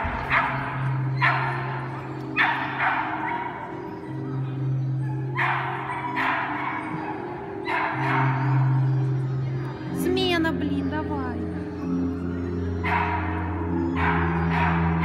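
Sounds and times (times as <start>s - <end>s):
background music: 0.0s - 15.0s
dog barking: 0.2s - 3.8s, 5.4s - 8.5s, 12.8s - 15.0s.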